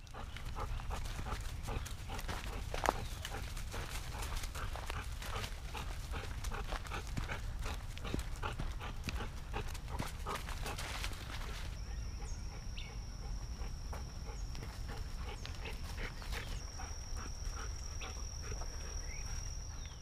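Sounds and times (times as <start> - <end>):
bird chirps: 11.8 - 20.0.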